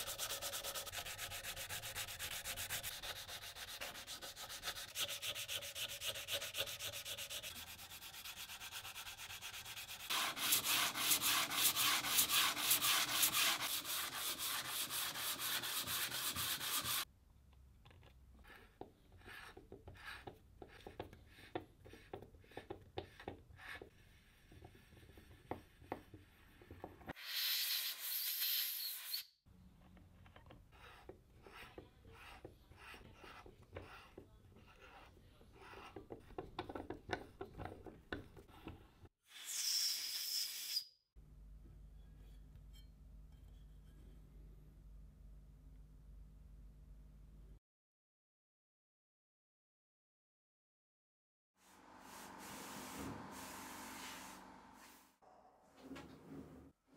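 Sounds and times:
hand scrubbing metal: 0.0s - 17.1s.

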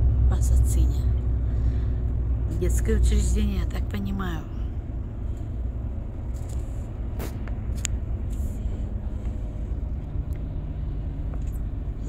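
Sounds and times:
faint steady hum: 0.0s - 12.0s
truck engine and tyres rumbling: 0.0s - 12.0s.

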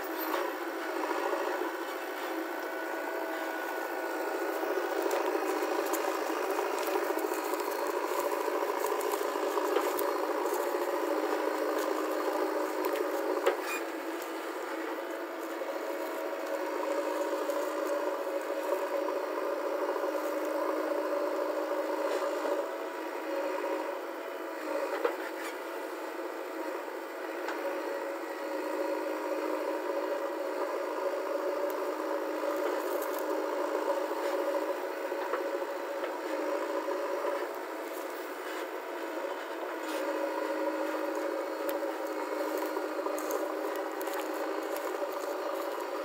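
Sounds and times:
diesel engine running: 0.0s - 46.0s
bucket scraping earth: 4.8s - 18.8s.

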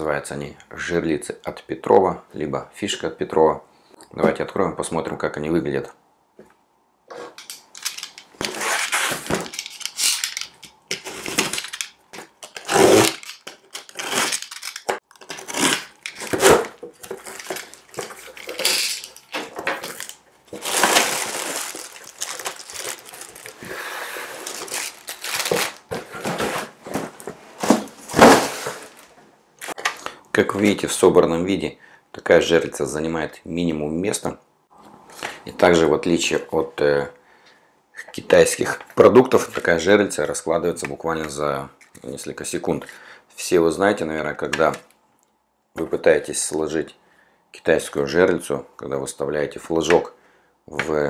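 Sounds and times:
utility knife slitting tape: 7.4s - 16.6s
plastic wrapping rustling: 7.4s - 29.8s
cardboard scraping and tearing: 8.4s - 10.1s, 12.5s - 18.8s, 19.9s - 29.1s.

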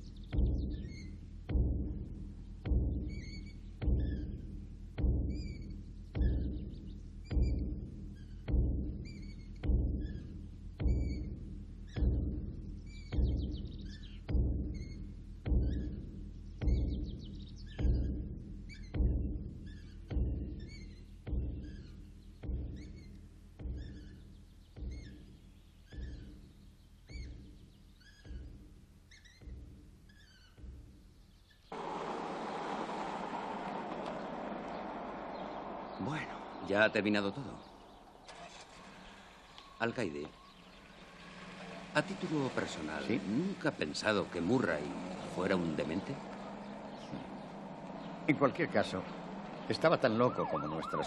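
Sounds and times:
slow booming drum beats: 0.0s - 31.1s
birds chirping: 0.0s - 51.0s
high chirping squeak: 8.2s - 12.1s, 28.0s - 28.4s, 29.1s - 30.6s.

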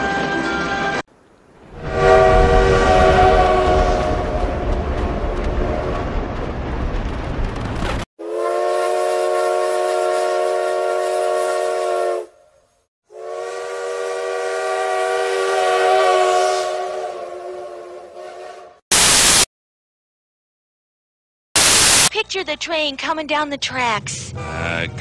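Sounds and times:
steam locomotive chime whistle: 1.8s - 4.3s, 13.1s - 18.7s
train whistle: 1.8s - 4.7s, 8.2s - 18.8s.

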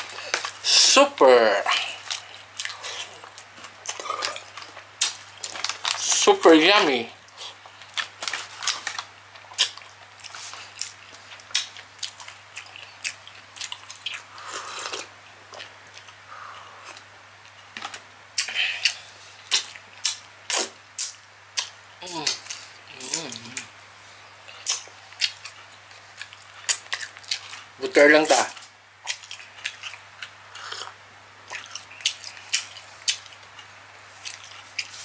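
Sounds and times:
lip smacks and chewing: 18.4s - 22.6s, 24.5s - 27.7s, 29.0s - 35.0s.

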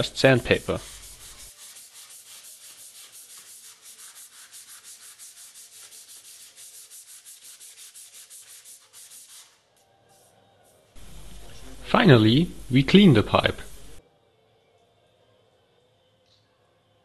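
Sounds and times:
sanding metal pipe: 0.4s - 10.3s.

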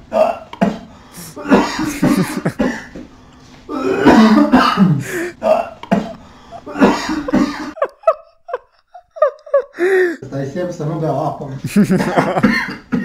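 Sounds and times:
man coughing hard: 0.1s - 2.9s, 3.7s - 7.8s, 11.8s - 13.0s.

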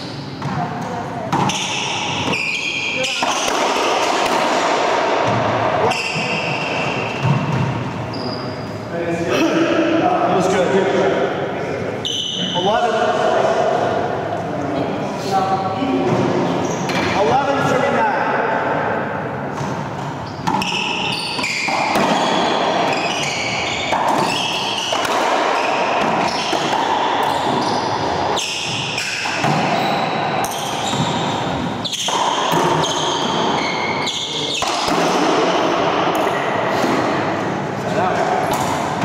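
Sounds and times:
shoes squeaking on hardwood floor: 1.4s - 3.4s, 5.3s - 8.8s, 19.6s - 34.9s.

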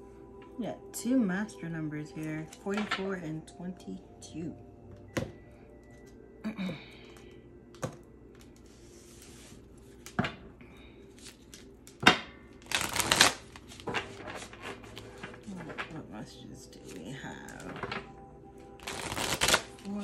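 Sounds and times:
cards shuffling: 12.6s - 15.9s, 18.8s - 19.9s.

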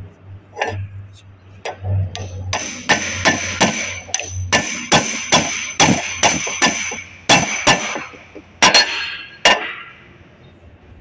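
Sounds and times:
hammer clanging on steel: 1.6s - 10.0s.

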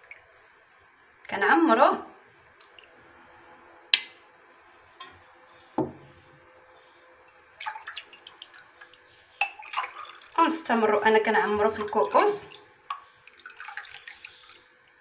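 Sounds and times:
milk dripping: 2.5s - 3.0s, 7.3s - 10.5s, 11.8s - 15.0s.

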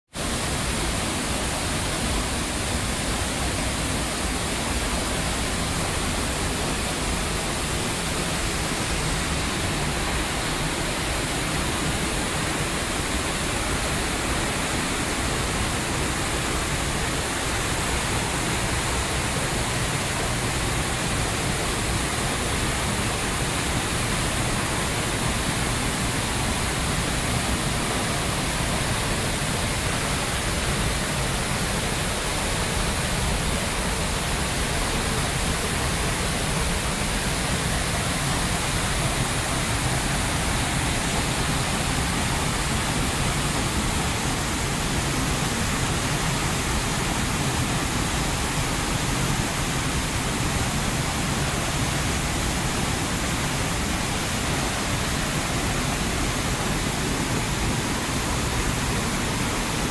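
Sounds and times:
waterfall rushing: 0.2s - 59.9s.

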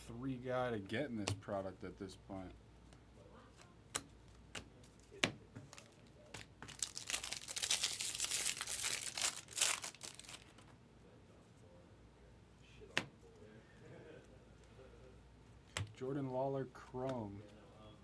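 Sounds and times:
foil wrapper tearing and crinkling: 6.6s - 10.6s.

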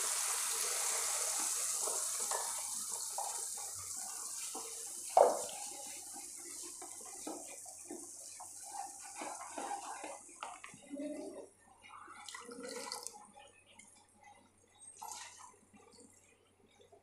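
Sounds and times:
paste sizzling in hot pan: 0.0s - 10.4s.

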